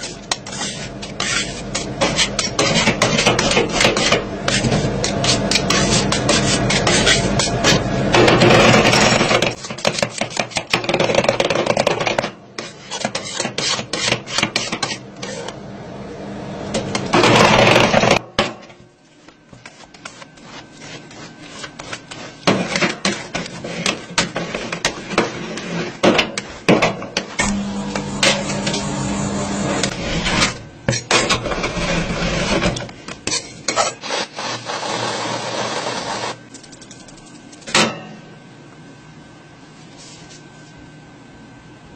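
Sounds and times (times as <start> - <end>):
spatulas scraping cold metal: 0.0 - 15.5, 29.7 - 36.4.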